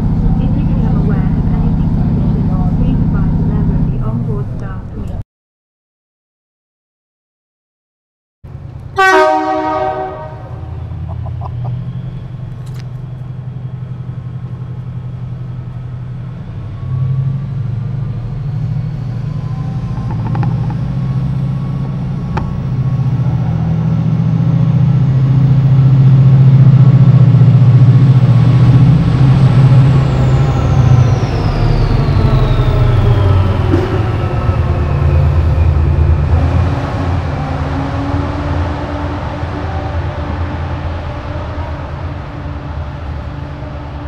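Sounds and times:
passenger train running slowly: 0.0s - 5.2s, 8.5s - 44.0s
train horn blast: 8.9s - 11.0s.

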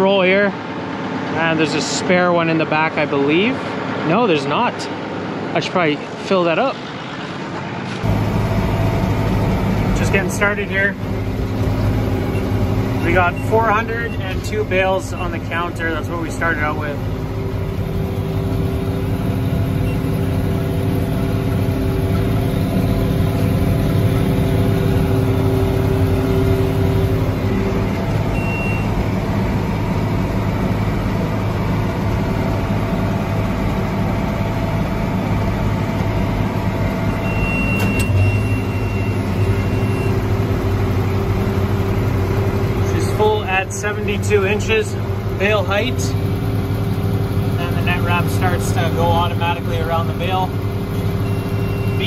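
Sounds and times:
tractor and baler running: 0.0s - 52.0s
electronic beeps: 12.3s - 15.6s, 28.3s - 28.9s, 37.2s - 40.2s, 51.2s - 52.0s.

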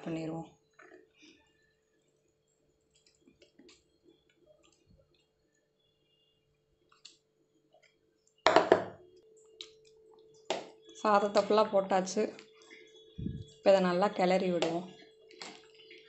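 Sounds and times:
faint steady hum: 1.3s - 16.0s
soft wet clicks: 2.9s - 5.3s, 6.9s - 8.4s, 9.6s - 10.4s.

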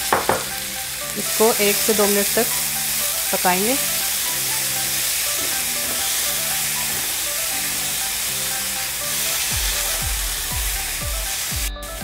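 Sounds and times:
deep thumping beat: 0.0s - 0.8s, 9.5s - 12.0s
onions sizzling in hot oil: 0.0s - 11.7s
background music: 0.0s - 12.0s
spatula stirring in pan: 1.3s - 10.8s.

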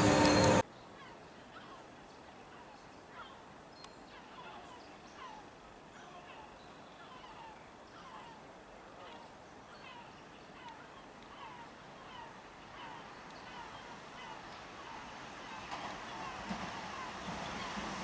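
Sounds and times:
train wheels squealing: 0.0s - 0.6s
light outdoor background: 0.0s - 18.0s
birds chirping faintly: 0.2s - 17.8s.

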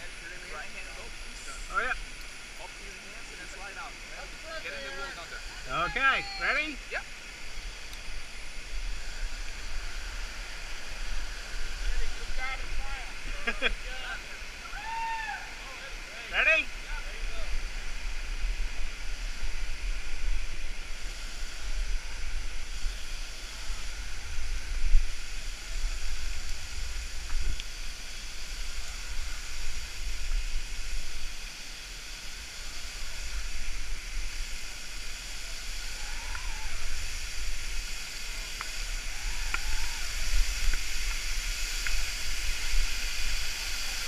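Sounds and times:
waterfall rushing: 0.0s - 44.0s
faint clicks: 7.8s - 8.1s.

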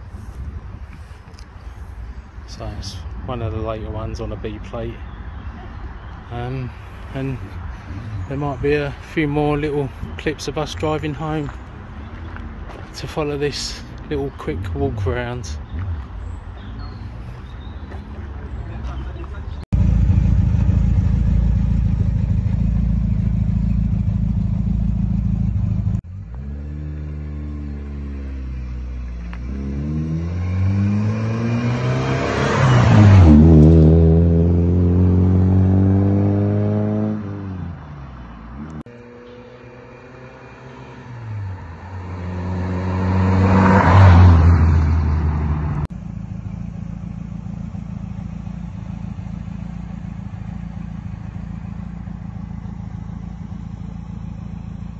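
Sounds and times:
steady low rumble: 19.7s - 26.0s
car accelerating past: 26.3s - 37.8s, 38.6s - 45.9s.

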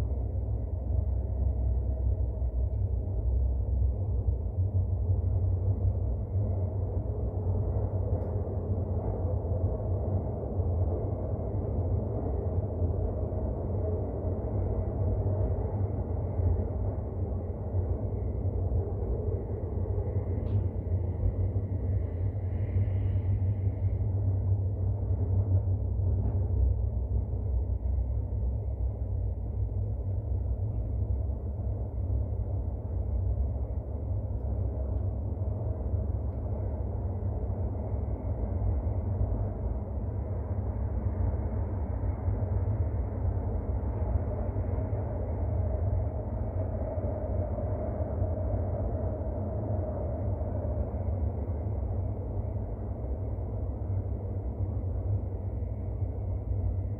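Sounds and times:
faint hum: 0.0s - 56.9s
metro train rumbling in tunnel: 0.0s - 56.9s.

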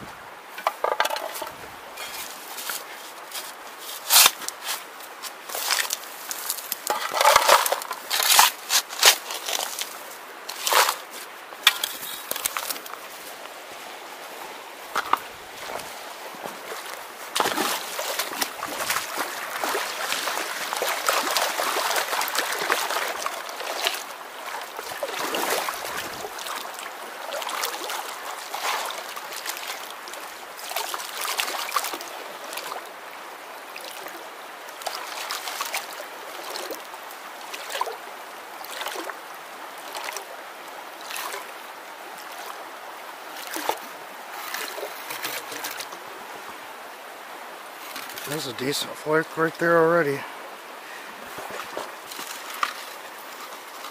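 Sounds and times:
creek trickling: 0.0s - 53.9s
water sloshing in a pan: 5.6s - 9.8s.

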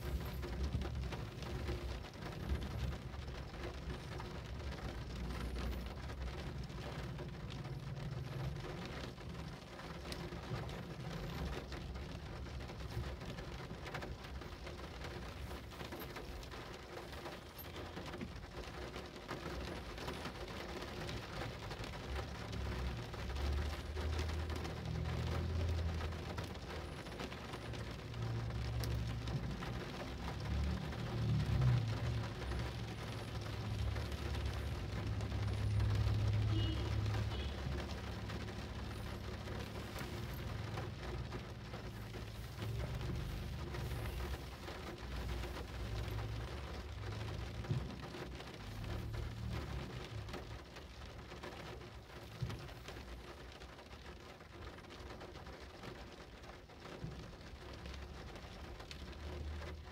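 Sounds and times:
rain falling: 0.0s - 59.9s.

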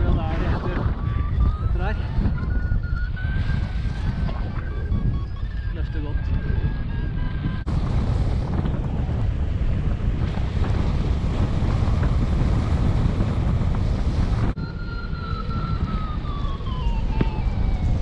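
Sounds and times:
airflow rushing over microphone: 0.0s - 18.0s
thin whistle sliding down: 14.6s - 17.8s.

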